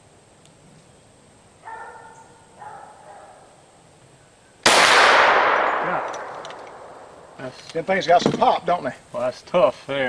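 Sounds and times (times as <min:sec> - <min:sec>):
pistol shot: 0:04.6 - 0:07.4.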